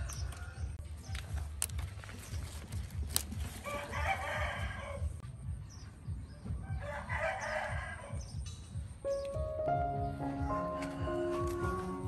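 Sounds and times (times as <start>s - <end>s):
rooster crowing: 3.6s - 5.1s, 6.7s - 8.2s.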